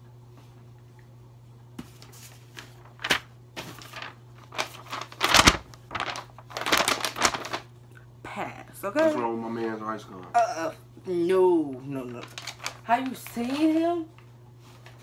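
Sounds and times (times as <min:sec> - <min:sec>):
paper rustling and crinkling: 0:01.8 - 0:07.7, 0:11.9 - 0:15.0.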